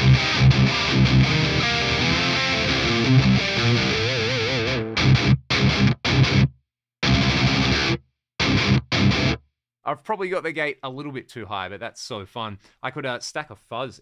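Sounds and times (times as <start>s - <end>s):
distorted electric guitar: 0.0s - 9.4s.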